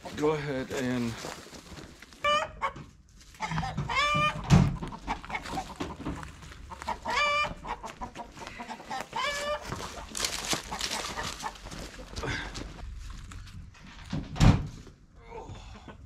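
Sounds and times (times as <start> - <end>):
farm animals calling: 2.1 - 12.4.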